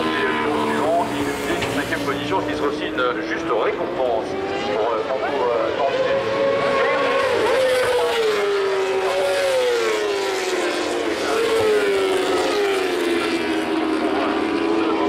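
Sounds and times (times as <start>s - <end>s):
racing motorcycles passing: 0.0s - 15.0s.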